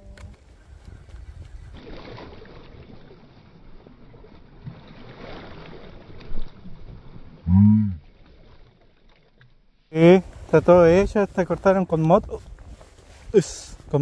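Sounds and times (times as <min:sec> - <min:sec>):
wind noise on microphone: 0:00.0 - 0:02.1, 0:10.2 - 0:14.0
flowing river water: 0:00.0 - 0:10.6.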